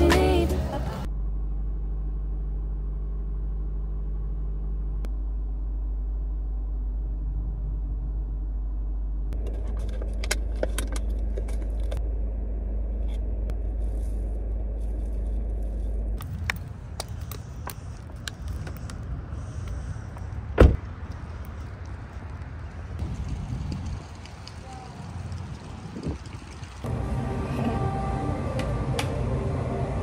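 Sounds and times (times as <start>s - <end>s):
car rumble inside cabin: 0.0s - 20.9s.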